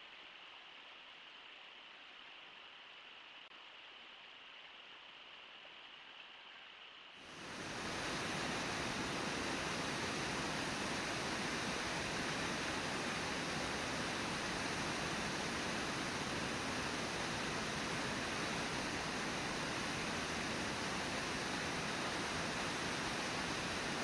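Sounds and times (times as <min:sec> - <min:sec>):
river water rushing: 0:07.2 - 0:24.0.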